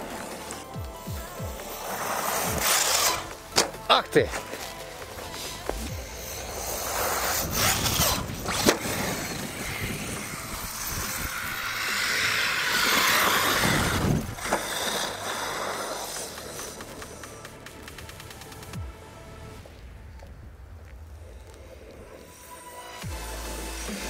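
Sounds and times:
electric motor whine: 0.0 - 3.7, 4.5 - 18.7.

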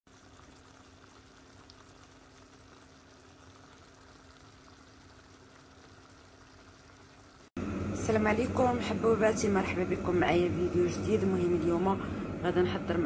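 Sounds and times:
stew bubbling and popping: 0.1 - 7.6
low hum: 7.4 - 13.0.

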